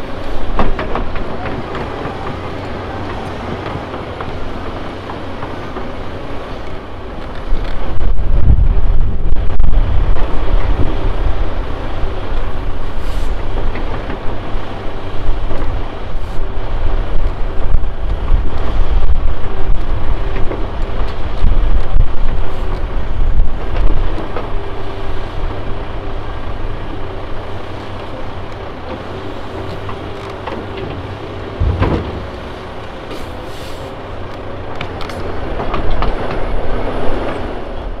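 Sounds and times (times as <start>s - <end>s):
excavator engine and hydraulics: 0.0s - 38.0s
timber knocking: 29.7s - 33.2s
logs thumping into metal truck bed: 31.6s - 33.4s.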